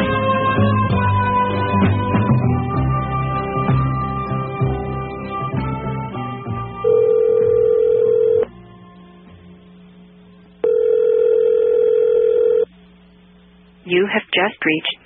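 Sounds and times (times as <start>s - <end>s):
telephone ringback tone: 6.8s - 8.5s, 10.6s - 12.7s.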